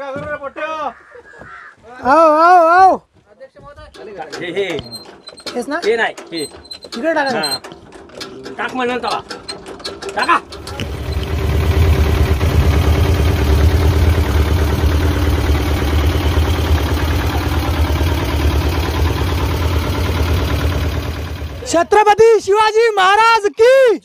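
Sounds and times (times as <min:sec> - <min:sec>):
boat engine starting and running: 0:03.9 - 0:22.3.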